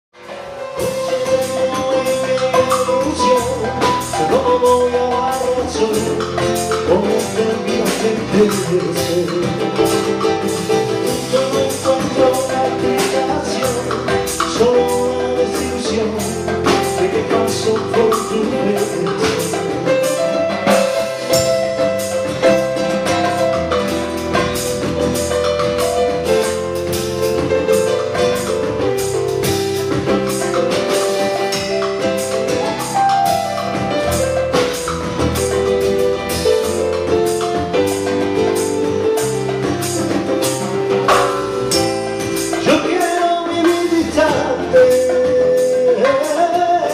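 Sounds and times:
drum kit beat: 0.2 - 46.9
electronic keyboard melody: 0.2 - 46.9.

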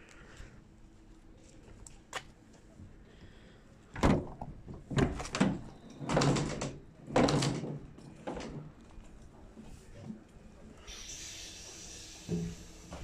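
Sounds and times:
metal door clunking: 4.0 - 8.8.

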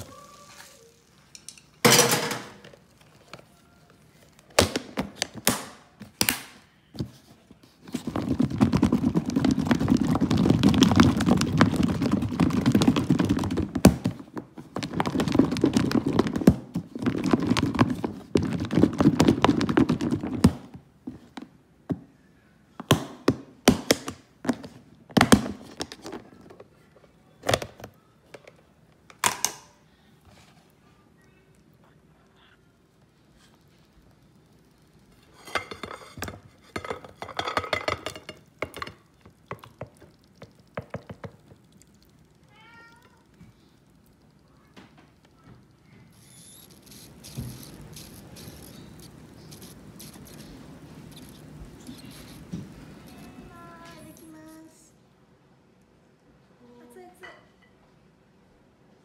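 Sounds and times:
food rattling and sloshing in container: 7.9 - 20.7, 35.2 - 41.6.

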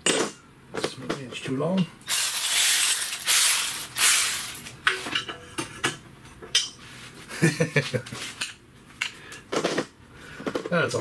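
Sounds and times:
loud hiss: 2.1 - 4.7.

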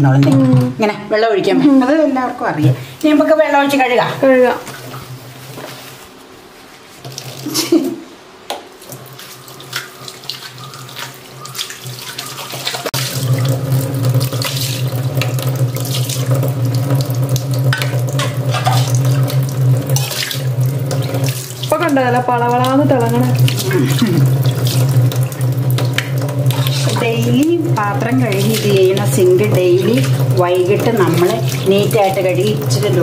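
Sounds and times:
tap water running into sink: 7.0 - 7.8, 8.8 - 33.0.

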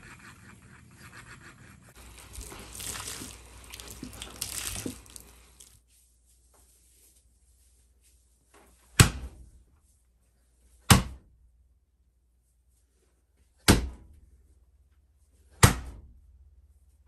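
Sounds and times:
wet yarn smacking wooden wall: 2.0 - 5.8.

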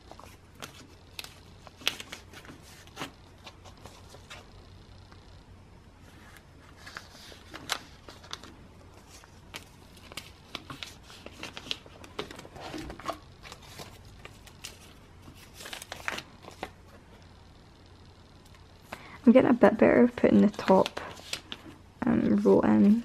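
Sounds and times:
plastic crinkling: 6.1 - 17.0.

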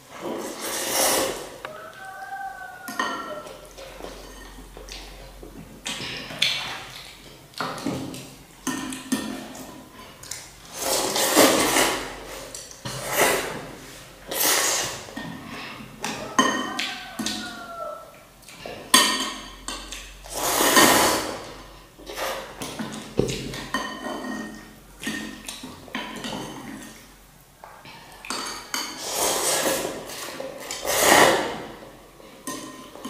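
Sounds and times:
noodles being slurped: 0.3 - 1.6, 9.4 - 15.3, 20.0 - 22.6, 29.0 - 31.8.

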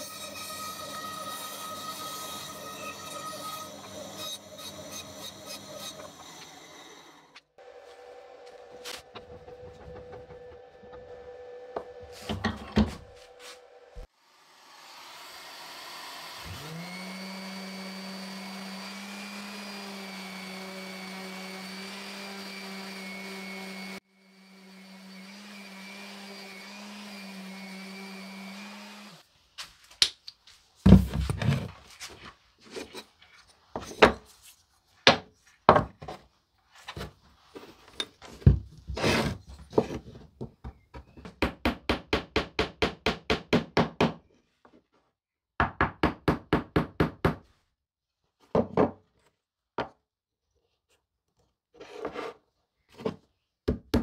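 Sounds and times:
electric orbital sander running: 14.2 - 29.2.

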